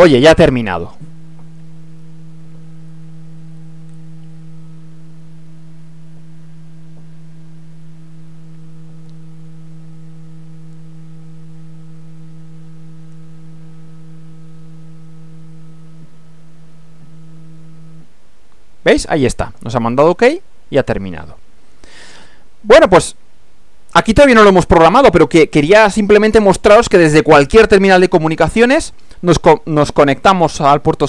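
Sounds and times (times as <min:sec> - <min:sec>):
stepper motor hum: 0:00.0 - 0:18.2.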